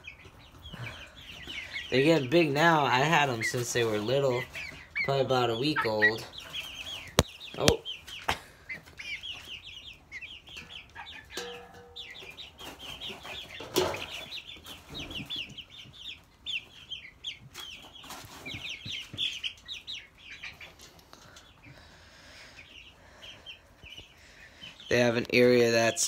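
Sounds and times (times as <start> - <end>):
chicks cheeping: 0.0 - 26.0.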